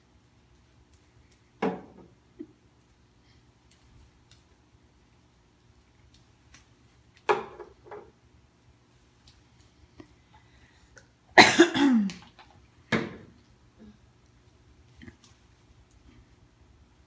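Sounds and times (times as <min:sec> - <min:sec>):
person coughing: 0:11.4 - 0:12.2.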